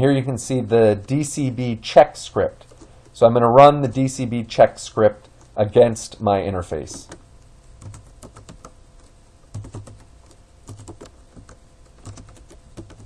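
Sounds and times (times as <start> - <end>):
computer keyboard typing: 6.9 - 7.2, 7.8 - 13.0.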